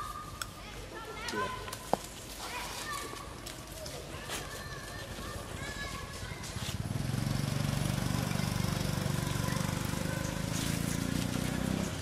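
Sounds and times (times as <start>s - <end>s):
small engine running: 6.7s - 12.0s.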